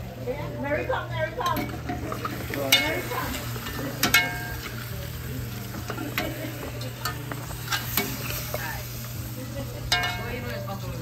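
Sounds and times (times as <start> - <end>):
soft sizzle: 0.0 - 11.0
metal utensils clinking on pot: 1.4 - 8.8, 9.7 - 10.9.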